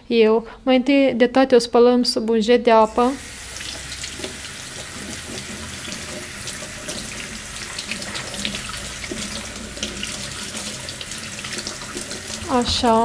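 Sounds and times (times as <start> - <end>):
tap running into steel sink: 11.9 - 13.0.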